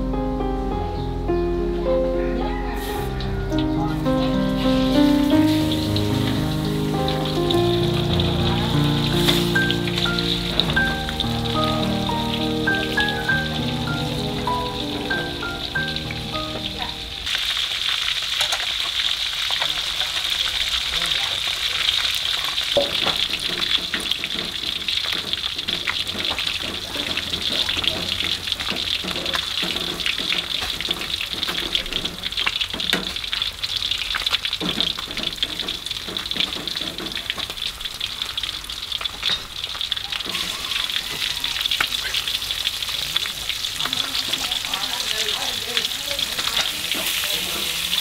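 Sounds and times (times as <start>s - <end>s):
music: 0.0s - 17.3s
food sizzling in hot oil: 2.8s - 48.0s.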